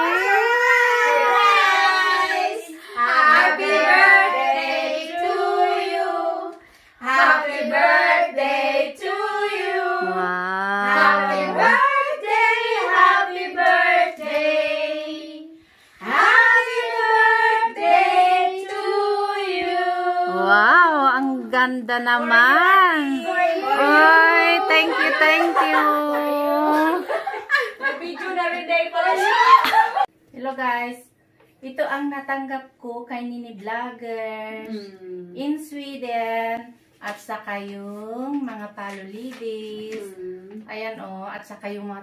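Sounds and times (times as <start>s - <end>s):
women singing together: 0.9s - 20.7s, 23.1s - 26.0s.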